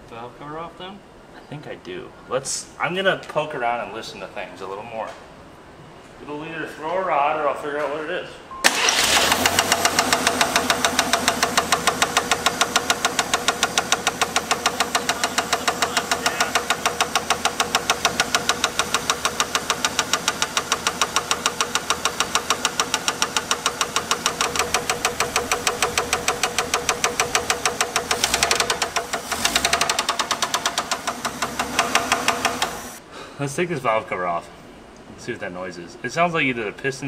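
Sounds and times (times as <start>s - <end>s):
car engine knocking: 9.1s - 33.0s.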